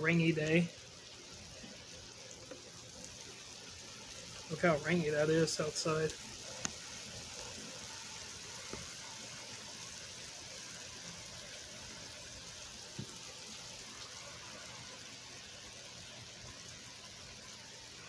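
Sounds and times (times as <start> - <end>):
heavy rain: 0.0 - 18.0
faint taps: 13.0 - 13.2.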